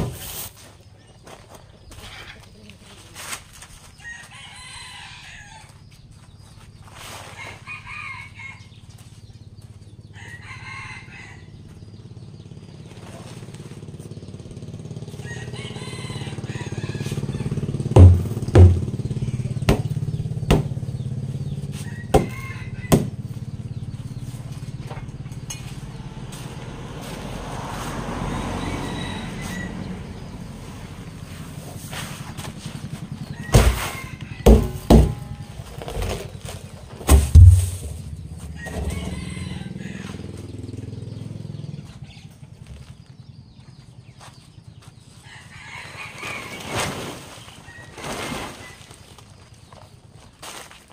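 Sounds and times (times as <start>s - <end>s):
chickens calling: 3.8s - 50.7s
rooster crowing: 4.0s - 5.8s, 7.4s - 8.8s, 10.0s - 11.7s, 15.1s - 18.2s, 21.7s - 23.6s, 27.8s - 30.5s, 33.2s - 35.5s, 38.4s - 40.5s, 45.2s - 46.9s
stick striking plastic drum: 18.0s - 18.9s.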